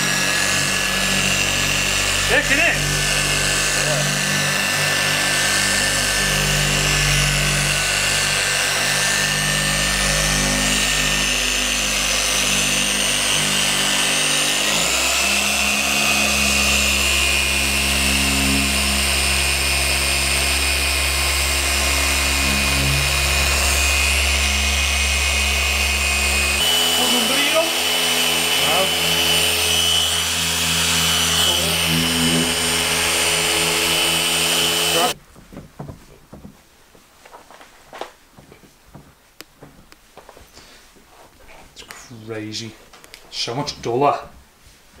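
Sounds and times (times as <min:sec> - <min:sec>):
electric polisher running: 0:00.0 - 0:35.2.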